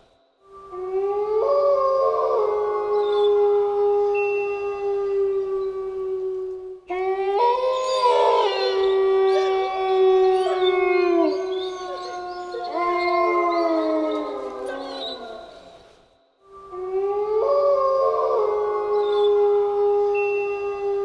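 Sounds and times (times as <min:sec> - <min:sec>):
wolves howling: 0:00.7 - 0:15.9, 0:16.7 - 0:21.0.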